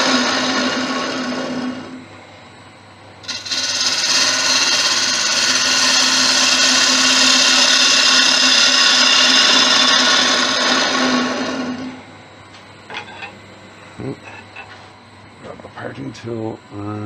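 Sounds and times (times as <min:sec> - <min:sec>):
lathe low hum: 0:00.0 - 0:17.0
gouge cutting wood hiss: 0:03.3 - 0:11.4.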